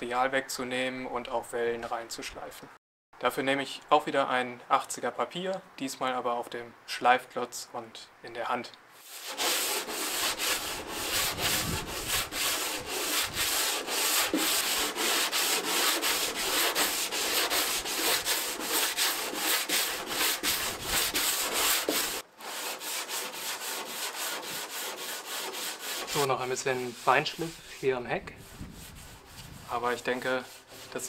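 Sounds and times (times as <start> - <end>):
sandpaper rubbing on wood: 9.0 - 31.0.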